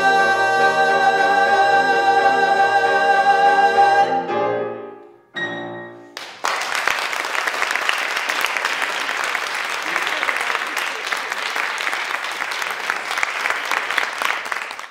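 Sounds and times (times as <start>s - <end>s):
audience applause: 6.2s - 14.9s.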